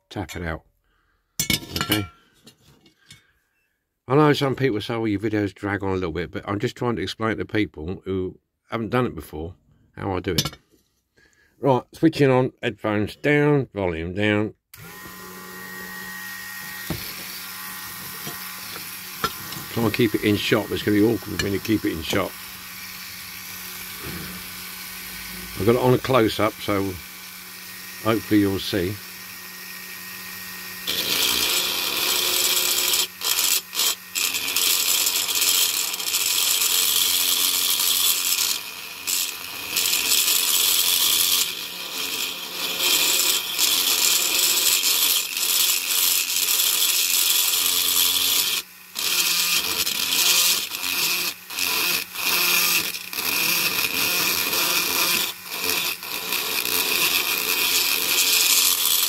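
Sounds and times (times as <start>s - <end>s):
rotary tool grinding metal: 14.8s - 59.0s.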